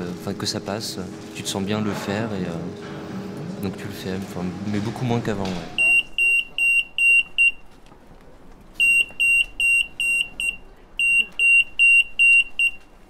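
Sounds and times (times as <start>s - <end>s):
security gate alarm beeping: 5.8s - 7.7s, 8.8s - 12.9s.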